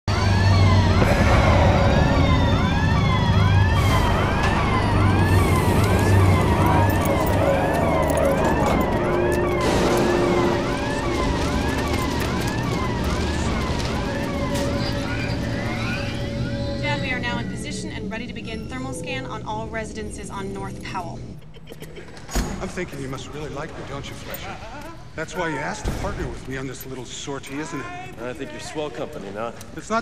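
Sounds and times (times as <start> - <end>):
warbling police siren: 0.0 - 19.3
low hum: 0.1 - 21.4.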